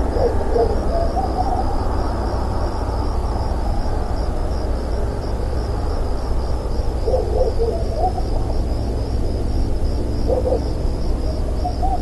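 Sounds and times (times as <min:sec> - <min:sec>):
owl hooting softly: 0:00.0 - 0:01.8, 0:07.0 - 0:08.5, 0:10.2 - 0:12.0
crickets chirping: 0:00.0 - 0:12.0.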